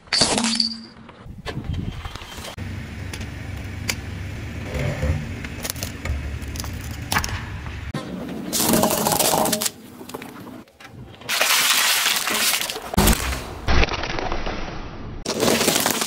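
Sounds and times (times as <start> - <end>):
foil capsules crackling: 11.3 - 13.0, 15.3 - 16.0
plastic and candy crunching: 15.3 - 16.0.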